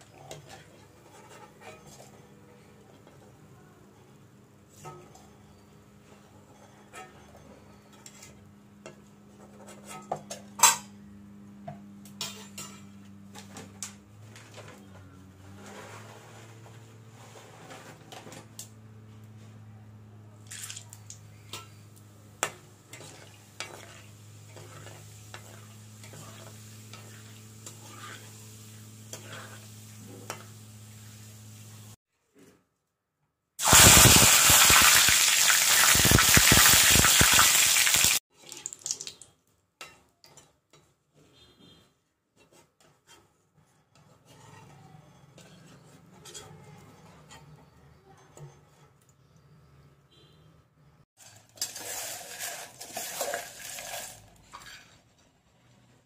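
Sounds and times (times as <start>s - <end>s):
food sizzling in hot oil: 23.0s - 32.0s, 33.6s - 39.2s, 51.3s - 54.3s.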